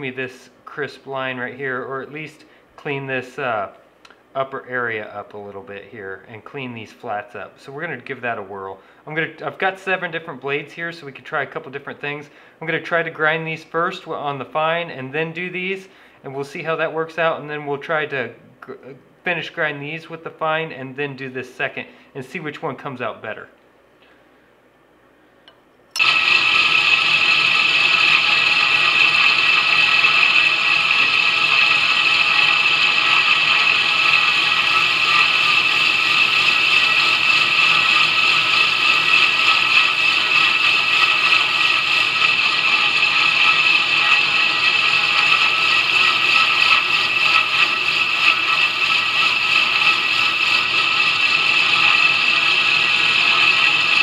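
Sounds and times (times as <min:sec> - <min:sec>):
belt grinder whirring: 0:26.0 - 0:54.0.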